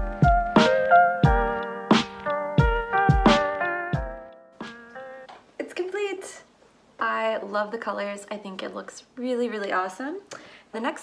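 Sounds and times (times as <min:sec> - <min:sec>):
steady drum beat: 0:00.0 - 0:04.8
keyboard chords: 0:00.0 - 0:05.3
upbeat instrumental music: 0:00.0 - 0:05.3.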